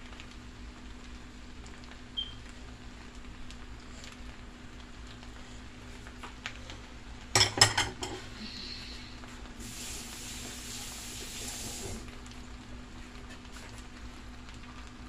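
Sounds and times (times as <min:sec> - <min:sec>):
dishes and utensils clinking: 0:07.4 - 0:08.2.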